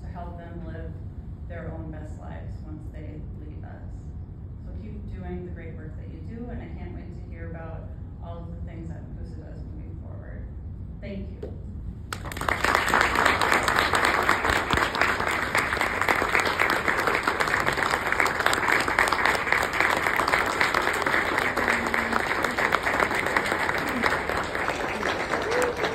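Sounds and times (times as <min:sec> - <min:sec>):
audience applauding: 0:12.1 - 0:25.9.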